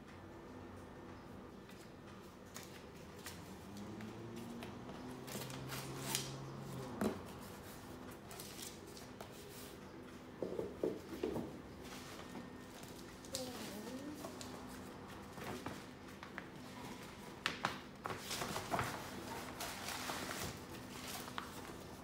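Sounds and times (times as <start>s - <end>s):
paper and cardboard crinkling: 11.9s - 22.0s.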